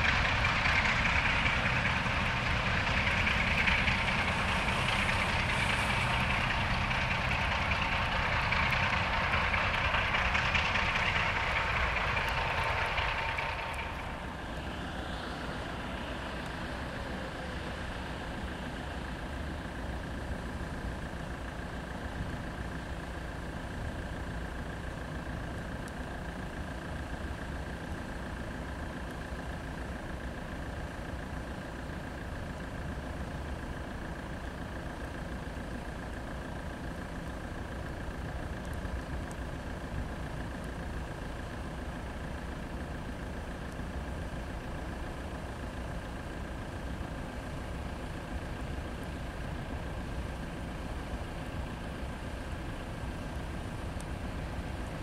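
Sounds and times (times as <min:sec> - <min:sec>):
train rumbling: 0:00.0 - 0:19.8
diesel locomotive engine under load: 0:00.0 - 0:55.0.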